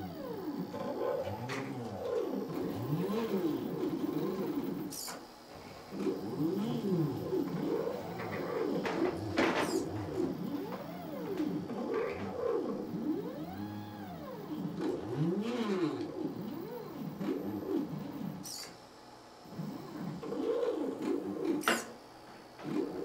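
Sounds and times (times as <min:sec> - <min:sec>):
stepper motors whining: 0:00.0 - 0:18.8.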